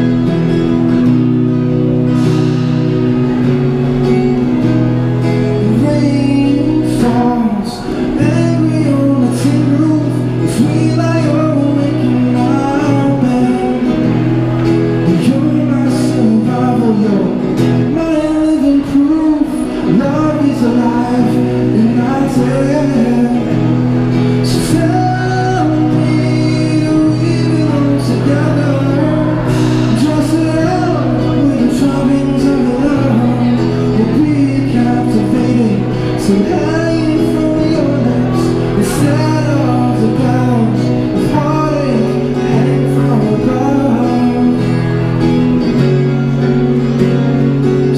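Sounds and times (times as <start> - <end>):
acoustic guitar strumming: 0.0 - 47.9
man singing: 3.3 - 47.9.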